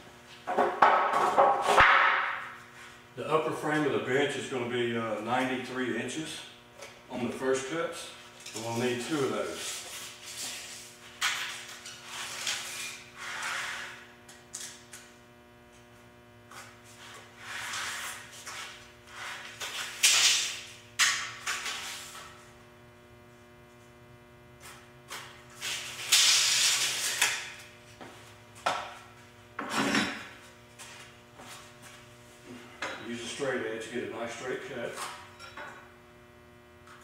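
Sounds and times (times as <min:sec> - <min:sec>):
electrical hum: 0:00.0 - 0:37.0
scraping and rustling on boards: 0:08.6 - 0:14.0, 0:16.6 - 0:20.6.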